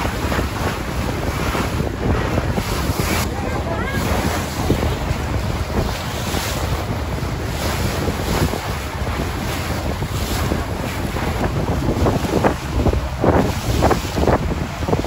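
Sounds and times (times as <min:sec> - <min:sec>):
boat wake churning water: 0:00.0 - 0:15.0
wind buffeting microphone: 0:00.0 - 0:15.0.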